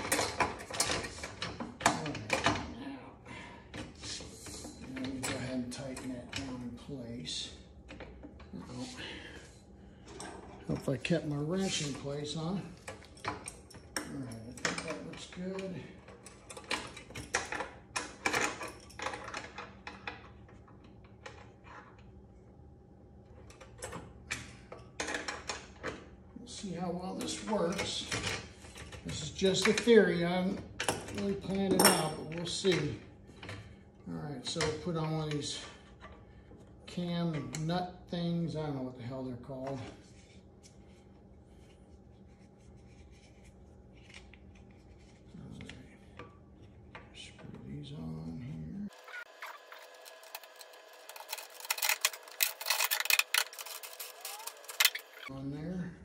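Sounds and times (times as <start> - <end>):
clamp clicking and scraping: 49.0 - 55.3.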